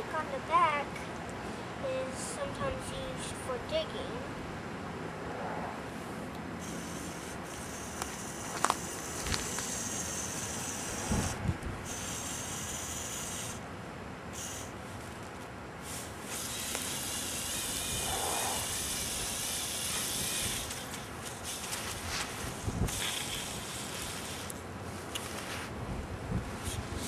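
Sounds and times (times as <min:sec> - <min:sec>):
small electric motors whirring: 0:06.6 - 0:13.7, 0:14.3 - 0:25.7.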